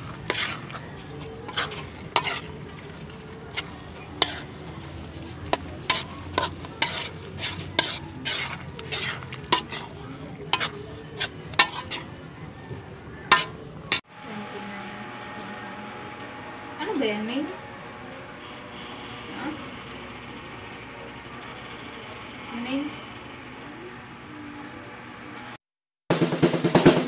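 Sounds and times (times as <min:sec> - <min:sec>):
metal spoon scraping a wok: 0:00.0 - 0:12.2, 0:13.0 - 0:14.1.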